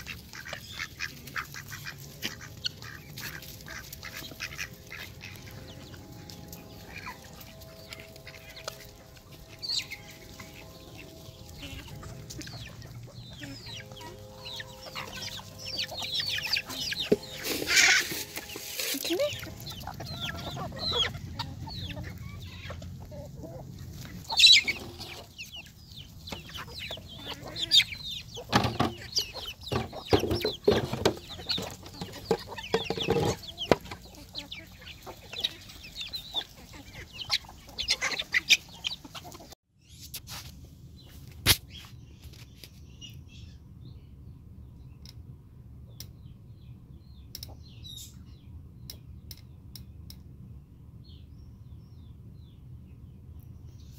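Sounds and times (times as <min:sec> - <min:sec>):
chickens clucking: 0:00.0 - 0:39.6.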